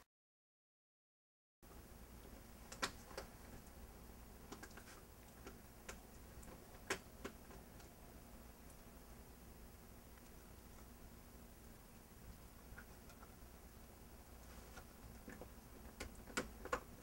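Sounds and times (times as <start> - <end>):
faint irregular clicks: 2.1 - 8.0, 10.1 - 17.0.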